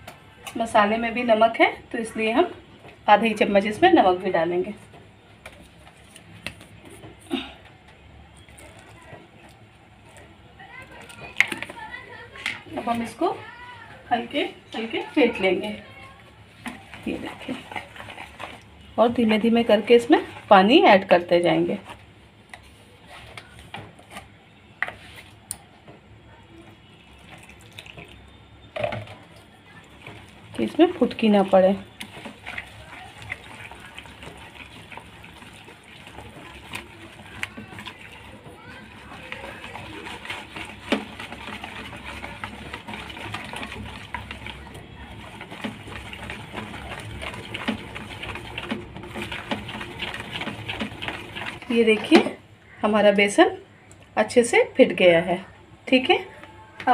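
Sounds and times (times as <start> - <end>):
water pouring into batter: 26.7 - 52.2
whisk clicking against bowl: 30.0 - 52.3.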